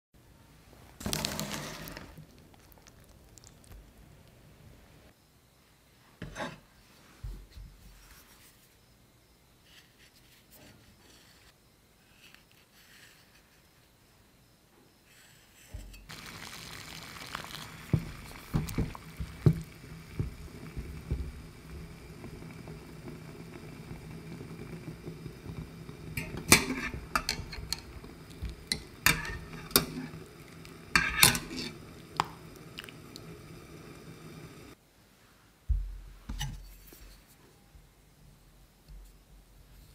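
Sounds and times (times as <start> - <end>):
water boiling in a saucepan: 1.1 - 5.1, 16.0 - 34.8
clicks and knocks against pot: 26.1 - 30.2, 30.9 - 32.9.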